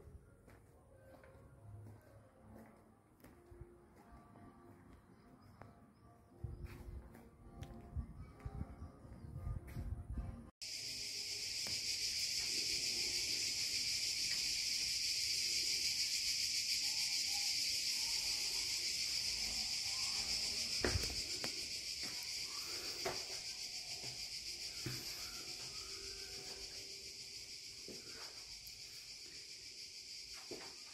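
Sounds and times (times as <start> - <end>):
cicadas buzzing: 10.6 - 30.9.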